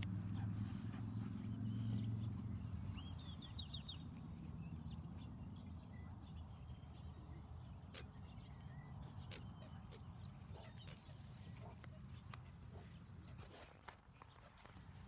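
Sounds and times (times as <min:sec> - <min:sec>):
small bird chirping: 0:01.5 - 0:12.4.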